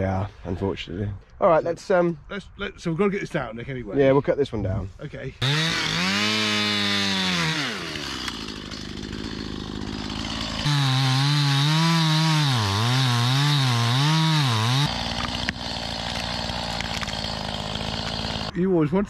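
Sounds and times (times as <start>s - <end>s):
chainsaw cutting wood: 5.4s - 18.5s.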